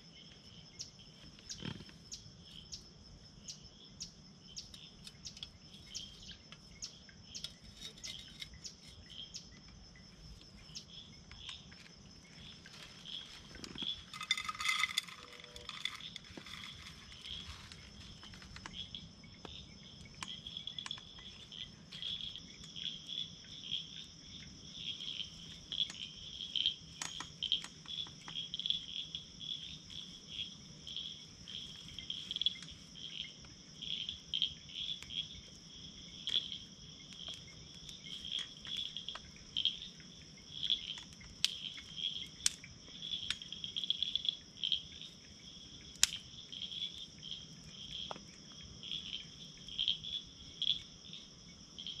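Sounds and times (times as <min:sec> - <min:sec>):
insects chorus: 0:00.0 - 0:52.0
campfire popping and crackling: 0:45.8 - 0:46.4.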